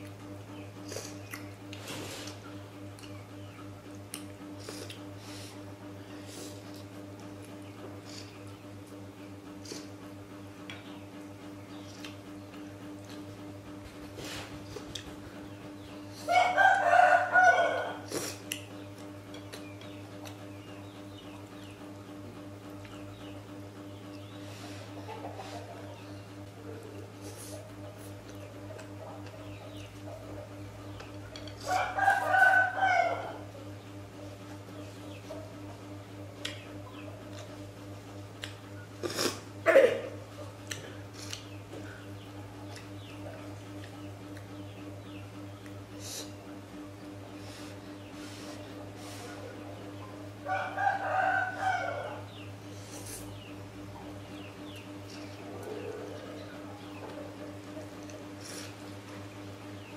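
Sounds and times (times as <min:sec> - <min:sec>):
steady low hum: 0:00.0 - 0:59.9
rooster crowing: 0:16.3 - 0:18.1, 0:31.7 - 0:33.5, 0:50.4 - 0:52.3.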